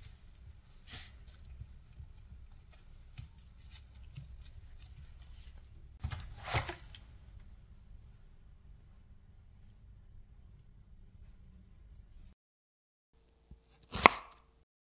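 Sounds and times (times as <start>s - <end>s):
hands pressing pastry dough: 0.0s - 7.2s
handling noises: 0.0s - 7.5s
soft rustles and ticks: 0.0s - 7.6s.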